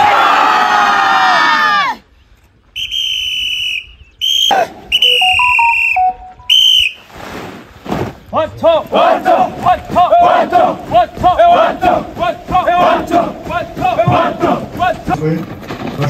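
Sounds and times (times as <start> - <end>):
voices shouting in unison: 0.0 - 2.0, 8.7 - 15.2
whistle blasts: 2.7 - 7.1.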